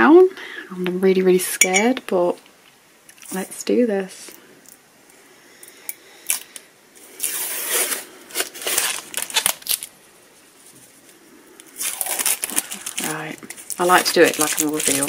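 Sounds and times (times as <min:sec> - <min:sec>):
tape and paper peeling: 0:06.3 - 0:10.0, 0:11.6 - 0:15.0.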